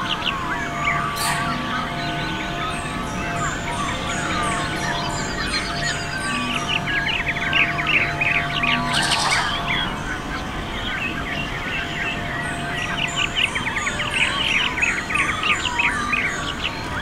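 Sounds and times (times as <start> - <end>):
birds singing and chirping: 0.0 - 17.0
thin high bird notes: 0.9 - 6.6.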